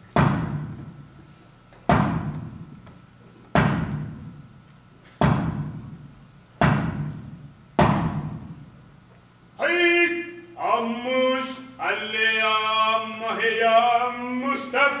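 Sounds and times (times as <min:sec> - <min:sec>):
heavy drum strikes: 0:00.1 - 0:01.1, 0:01.9 - 0:02.8, 0:03.6 - 0:04.5, 0:05.2 - 0:08.7.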